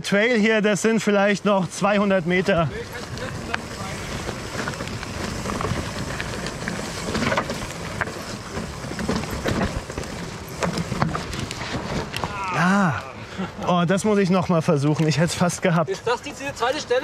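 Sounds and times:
bike tyres on rocky trail: 0:00.0 - 0:17.0
bike knocking and rattling: 0:00.8 - 0:13.0.

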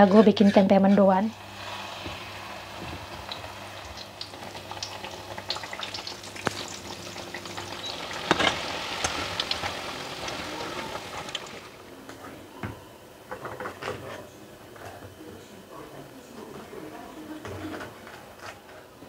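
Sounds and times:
deep-frying sizzle with crackling: 0:00.0 - 0:12.1.

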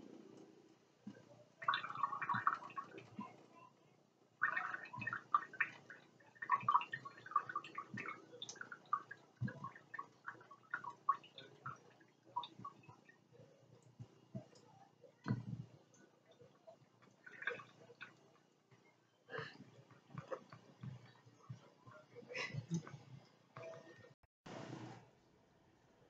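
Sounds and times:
cat lapping water: 0:01.1 - 0:03.4, 0:04.4 - 0:18.5.

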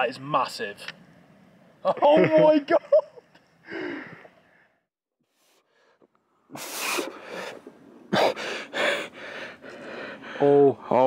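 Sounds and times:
heavy noisy breaths: 0:03.6 - 0:04.8, 0:05.6 - 0:10.9.

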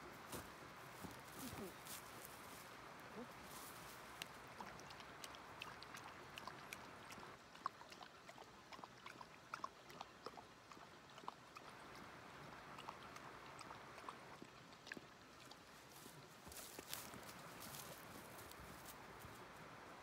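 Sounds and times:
dog lapping water: 0:04.3 - 0:16.2.

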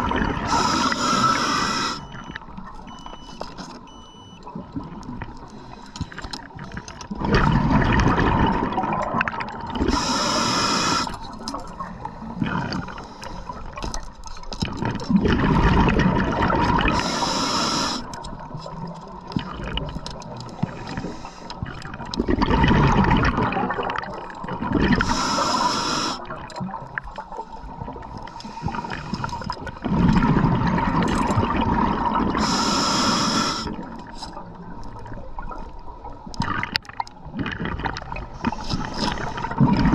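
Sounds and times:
exhaled bubbles rumbling underwater: 0:00.0 - 0:39.9
regulator inhale hiss: 0:00.5 - 0:02.1, 0:09.9 - 0:11.3, 0:16.9 - 0:18.2, 0:20.6 - 0:21.6, 0:25.0 - 0:26.3, 0:28.3 - 0:29.4, 0:32.4 - 0:33.9.

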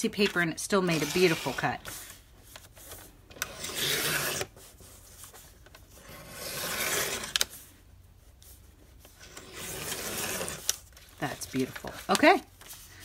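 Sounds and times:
paper trimmer slicing paper: 0:00.2 - 0:01.7, 0:03.4 - 0:04.5, 0:06.1 - 0:07.4.

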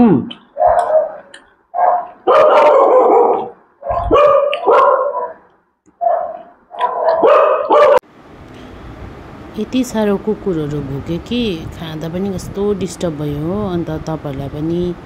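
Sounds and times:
dogs barking: 0:00.5 - 0:08.0.

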